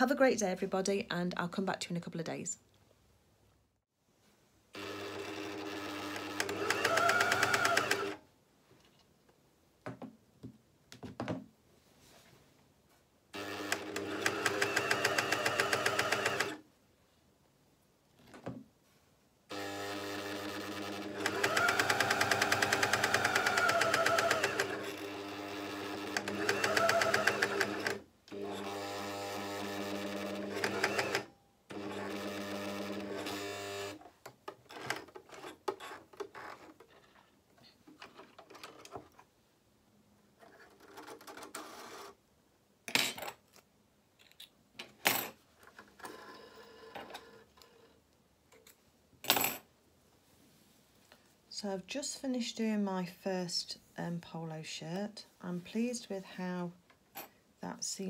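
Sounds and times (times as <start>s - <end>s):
sewing machine stitching: 4.8s - 8.2s, 13.4s - 16.6s, 19.5s - 34.0s.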